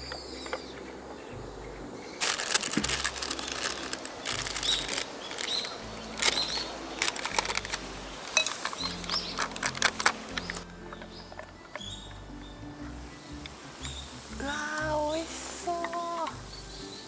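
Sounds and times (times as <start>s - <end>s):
small birds chirping: 0.0s - 17.0s
packet crinkling: 2.2s - 10.7s.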